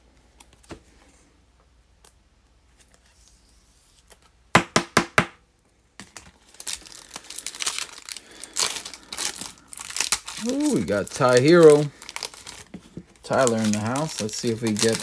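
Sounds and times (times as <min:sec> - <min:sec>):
foil wrapper crinkling and tearing: 0:06.0 - 0:15.0.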